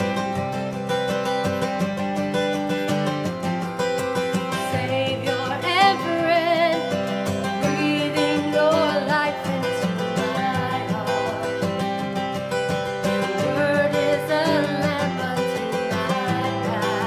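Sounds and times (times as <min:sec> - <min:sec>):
acoustic guitar: 0:00.0 - 0:17.0
woman singing with vibrato: 0:04.5 - 0:12.0, 0:13.1 - 0:17.0.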